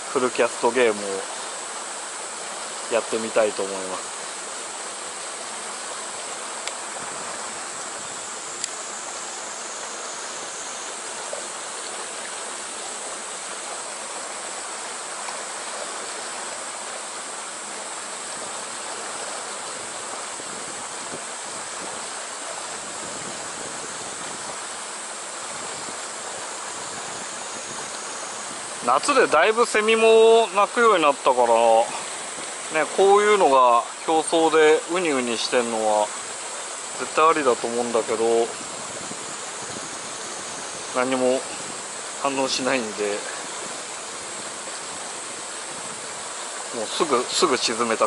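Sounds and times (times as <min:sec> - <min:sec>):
stream water rushing: 0:00.0 - 0:48.0
faint ticks: 0:06.6 - 0:06.8, 0:08.6 - 0:08.8.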